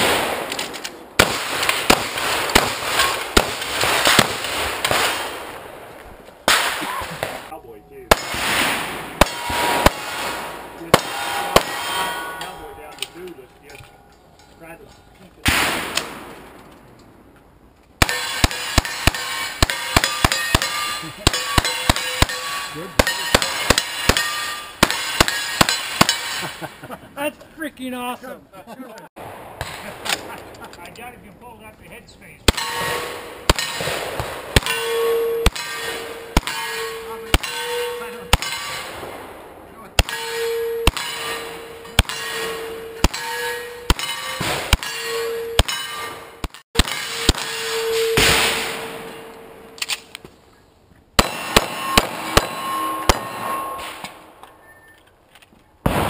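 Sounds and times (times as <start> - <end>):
submachine gun single shots: 0.0 - 5.5, 46.4 - 49.0, 51.2 - 54.1
rapid gunshots: 1.2 - 5.6, 18.0 - 26.2, 51.2 - 53.4
steel target ringing: 6.5 - 16.2, 18.0 - 26.7, 32.5 - 39.1, 40.0 - 49.8, 51.2 - 54.9.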